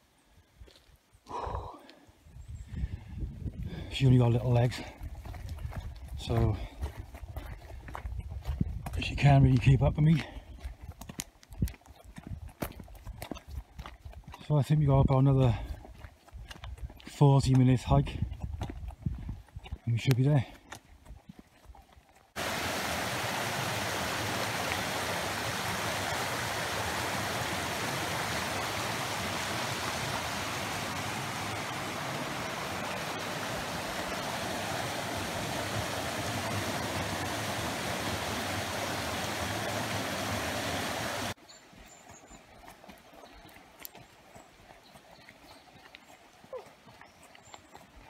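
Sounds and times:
stream rushing over rocks: 22.4 - 41.4.

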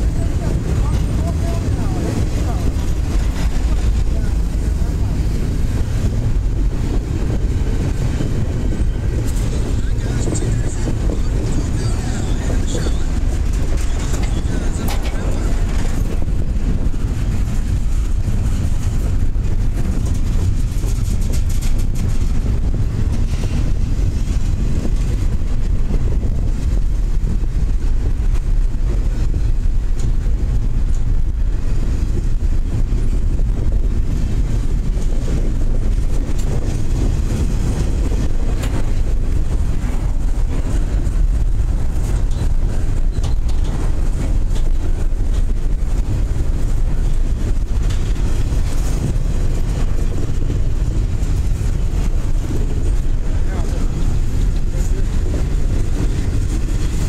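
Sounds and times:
train wheels rumbling on rail: 0.0 - 57.0
clicks of train wheels: 9.1 - 26.0, 28.3 - 31.2, 34.6 - 57.0.

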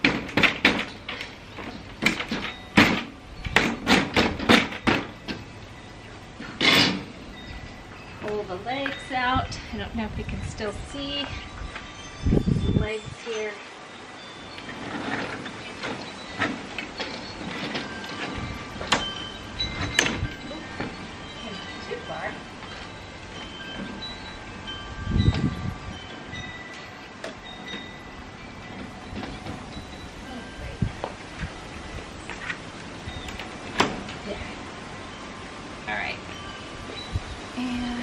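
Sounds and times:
metal frame clicking and clattering: 0.0 - 5.5, 6.4 - 7.2
metal camp kitchen frame clanking: 0.0 - 5.6, 6.4 - 7.7, 14.6 - 30.8.

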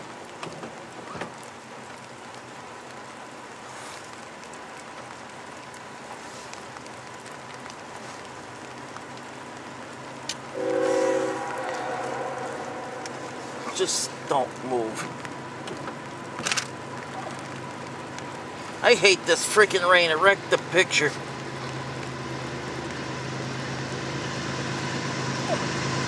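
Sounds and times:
rain hissing: 0.0 - 26.0
locomotive air horn: 10.5 - 14.3.

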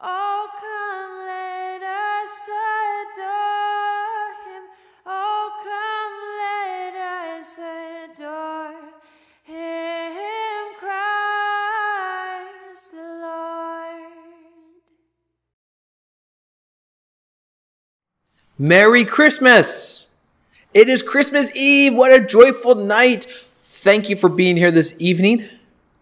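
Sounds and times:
woman singing unaccompanied: 0.0 - 14.9
singer breathing: 4.7 - 5.1, 9.0 - 9.5, 23.2 - 23.6.

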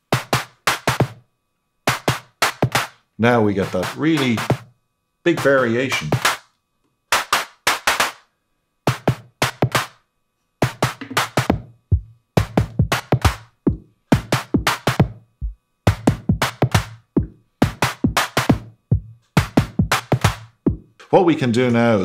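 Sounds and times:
electronic drum groove: 0.0 - 1.2, 1.9 - 4.7, 5.3 - 6.5, 7.1 - 8.2, 8.9 - 10.0, 10.6 - 21.1
noisy electronic snare: 0.0 - 1.2, 1.9 - 4.7, 5.3 - 6.5, 7.1 - 8.3, 8.9 - 10.0, 10.6 - 21.1
deep kick drum: 10.6 - 20.9.

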